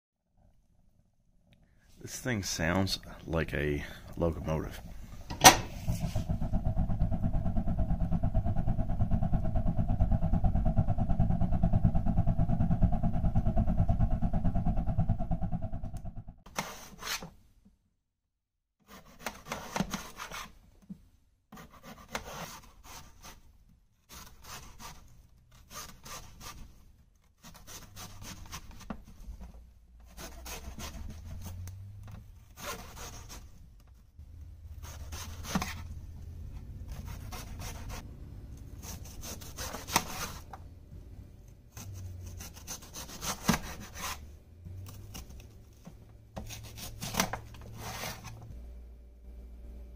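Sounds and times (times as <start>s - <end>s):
knife slicing vegetables: 34.7s - 36.0s, 36.8s - 38.0s, 41.7s - 44.2s, 44.8s - 45.7s, 46.4s - 48.4s.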